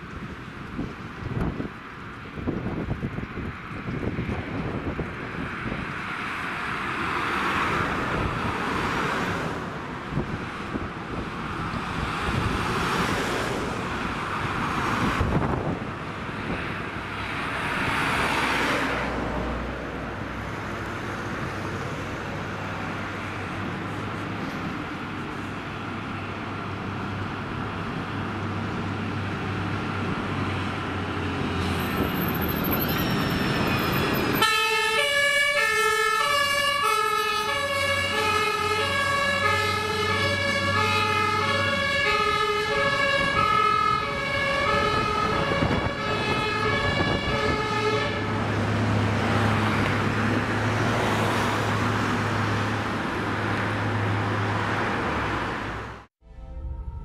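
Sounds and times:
two-tone emergency siren: 0:32.0 - 0:48.4, 0:56.2 - 0:57.0.

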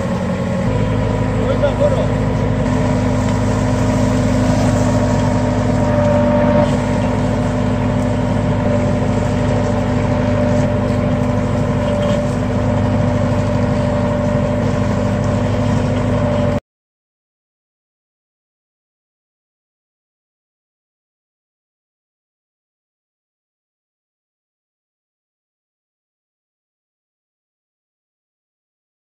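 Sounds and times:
tractor engine running: 0:00.0 - 0:16.6.

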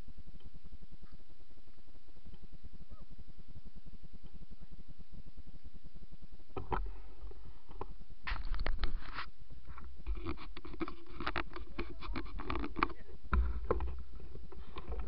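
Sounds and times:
wind rumbling on microphone: 0:00.7 - 0:15.0
handling clicks and rustles: 0:07.8 - 0:15.0.

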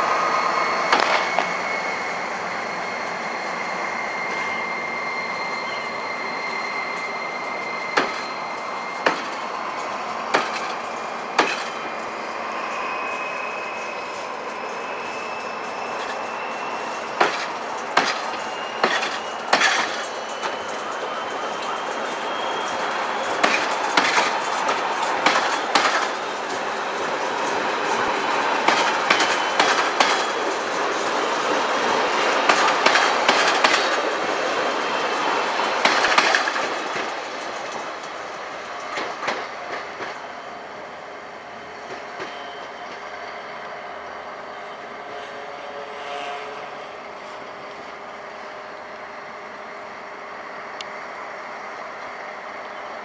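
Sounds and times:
train wheels clicking over rail joints: 0:00.8 - 0:01.8, 0:06.8 - 0:43.3.

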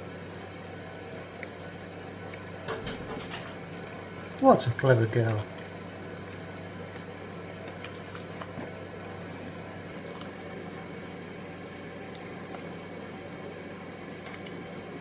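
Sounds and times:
low hum and hiss: 0:00.0 - 0:15.0.

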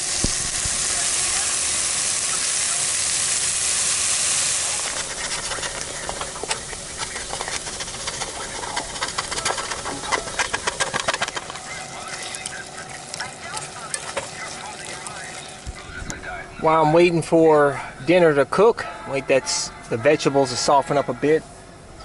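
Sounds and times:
meat sizzling in a pan: 0:00.0 - 0:15.6
sharp pops and crackles: 0:04.6 - 0:16.2.

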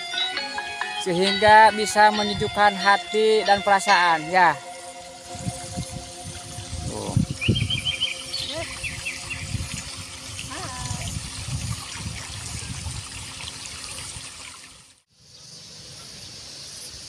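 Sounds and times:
water trickling: 0:01.1 - 0:15.0
wind gusts on microphone: 0:05.2 - 0:14.3.

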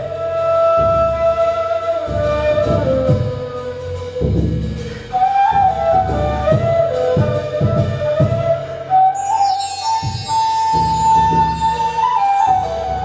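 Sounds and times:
end-blown flute melody: 0:00.0 - 0:13.0
frame drum strokes: 0:00.0 - 0:13.0.

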